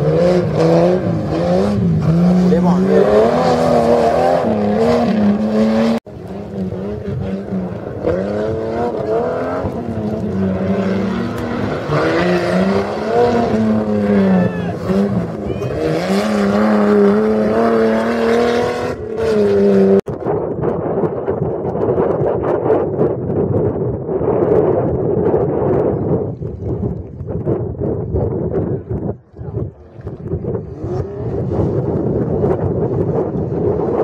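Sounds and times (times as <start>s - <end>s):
car engine revving hard: 0.0s - 20.1s, 30.7s - 34.0s.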